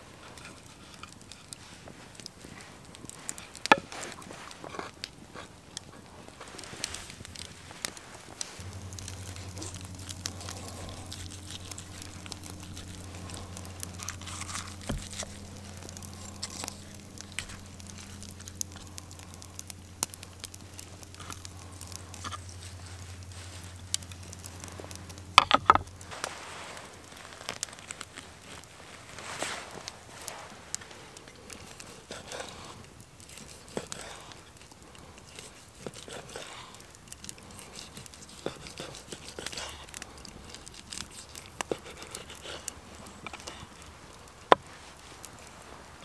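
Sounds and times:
low hum: 2.2s - 35.7s
knife cutting roast chicken: 8.6s - 18.8s, 37.5s - 39.8s, 40.5s - 42.7s.

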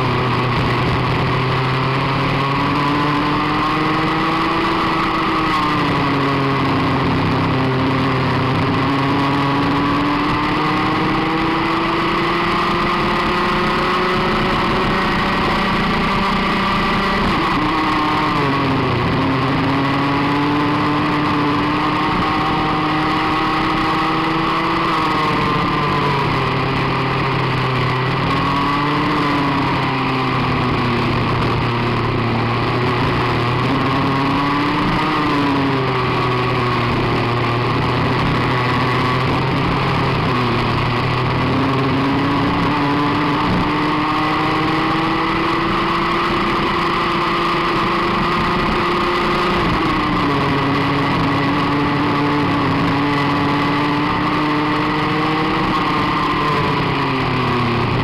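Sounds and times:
kart engine revving: 0.0s - 58.0s.

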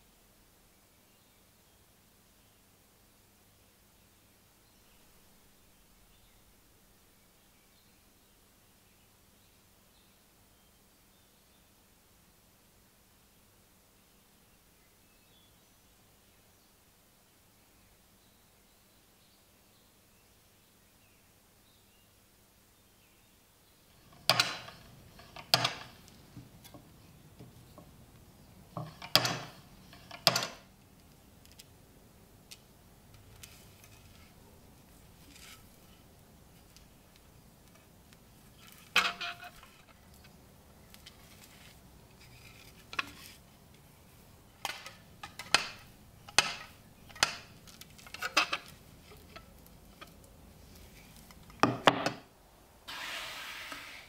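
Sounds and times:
metal parts clicking and knocking: 24.0s - 26.8s, 28.7s - 30.7s, 44.6s - 50.2s.

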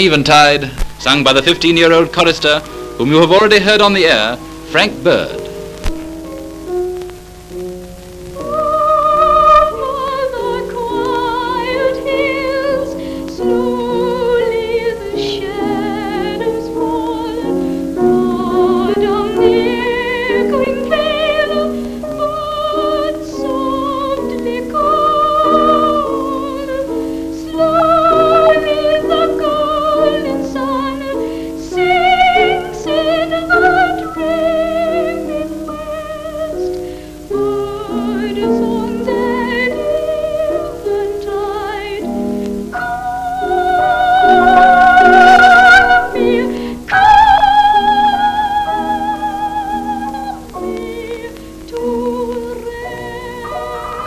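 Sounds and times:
grand piano: 0.0s - 54.0s
boy singing a slow ballad: 8.4s - 54.0s.

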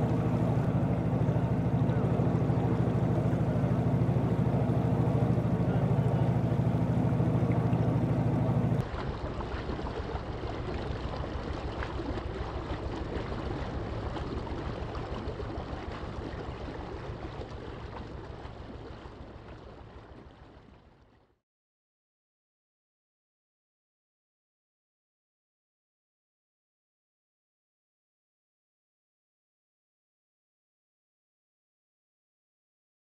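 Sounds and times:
boat engine running: 0.0s - 21.1s
water rushing along hull: 0.0s - 21.3s.

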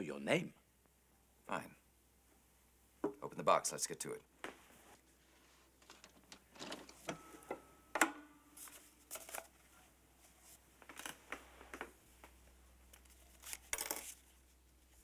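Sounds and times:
paper rustling: 8.6s - 9.8s, 12.9s - 15.0s.

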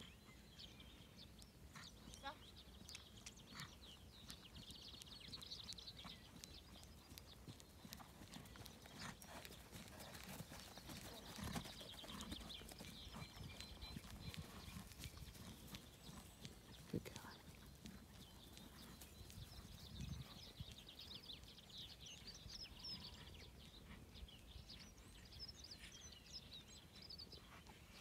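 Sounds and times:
hoofbeats on grass: 1.7s - 24.5s.

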